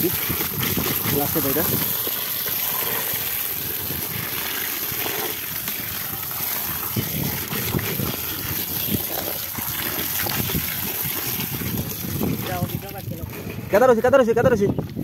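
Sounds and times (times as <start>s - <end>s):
water splashing onto fish: 0.0s - 13.3s.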